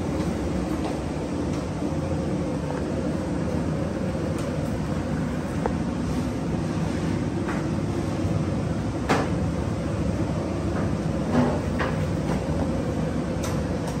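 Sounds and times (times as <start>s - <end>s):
low rumbling kitchen noise: 0.0s - 14.0s.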